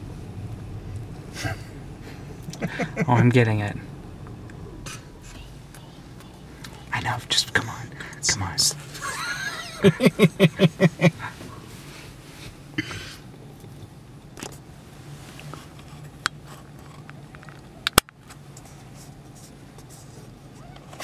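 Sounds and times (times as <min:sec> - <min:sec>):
car cabin hum: 0:00.0 - 0:21.0
person laughing: 0:01.4 - 0:03.3, 0:09.0 - 0:11.4.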